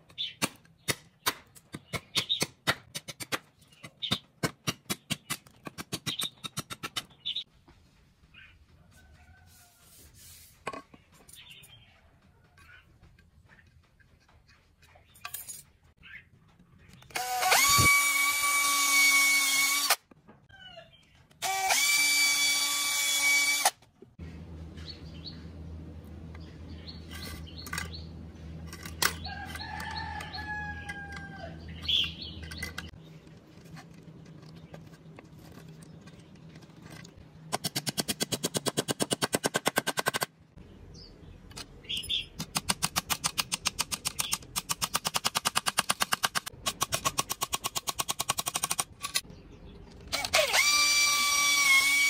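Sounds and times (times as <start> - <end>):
cordless drill motor whine: 17.2 - 20.0, 21.4 - 23.7, 50.1 - 52.0.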